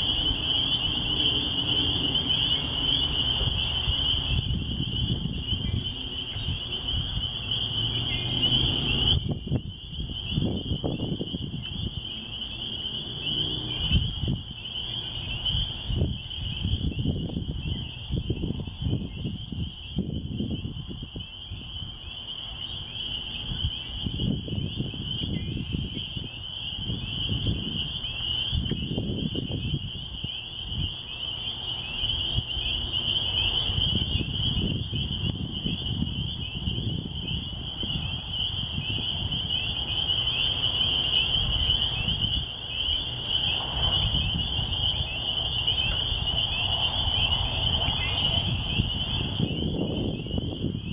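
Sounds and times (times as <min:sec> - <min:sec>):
frogs peeping chorus: 0:00.0 - 0:50.9
wind gusting on microphone: 0:00.0 - 0:50.9.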